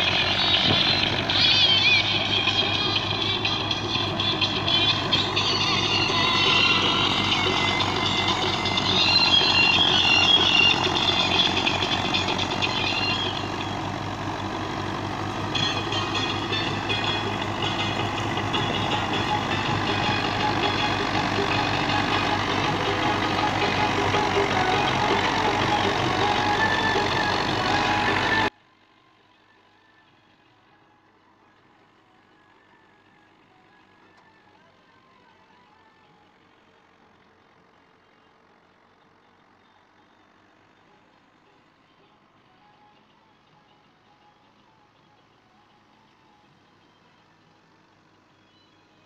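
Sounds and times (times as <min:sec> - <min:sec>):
reaper chopping machinery: 0:00.0 - 0:28.5
tractor diesel engine running: 0:00.0 - 0:49.0.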